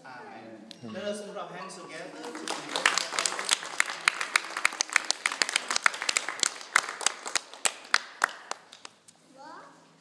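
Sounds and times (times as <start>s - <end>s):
people applauding: 2.2s - 9.0s.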